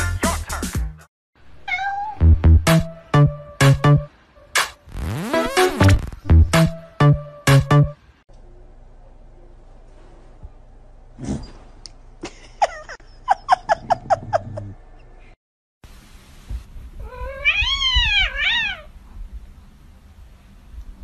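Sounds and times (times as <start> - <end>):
cat meowing: 1.6 - 2.2, 17.0 - 18.9.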